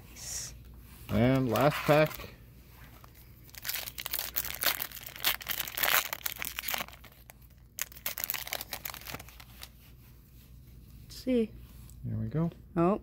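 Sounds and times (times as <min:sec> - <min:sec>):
foil wrapper tearing and crinkling: 0:01.2 - 0:02.3, 0:03.5 - 0:09.7.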